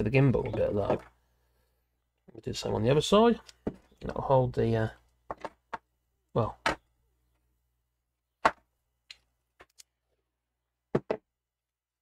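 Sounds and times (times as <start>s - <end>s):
hands handling tape: 9.1s - 10.0s.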